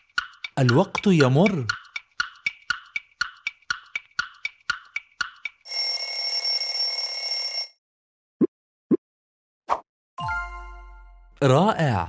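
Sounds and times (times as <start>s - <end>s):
clock ticking: 0.0s - 6.0s.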